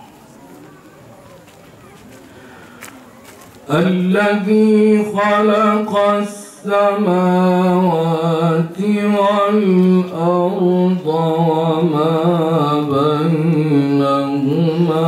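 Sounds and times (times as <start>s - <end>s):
man chanting melodically: 3.7s - 15.0s.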